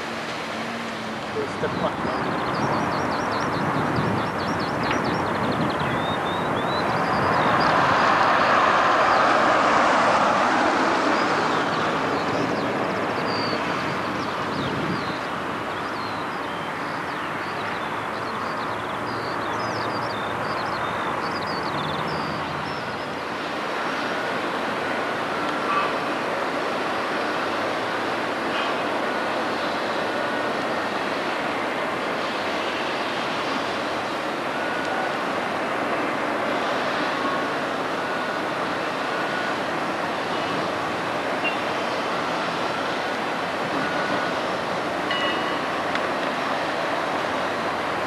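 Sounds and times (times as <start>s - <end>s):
steady rushing noise: 0.0s - 48.0s
small birds chirping: 1.3s - 7.8s.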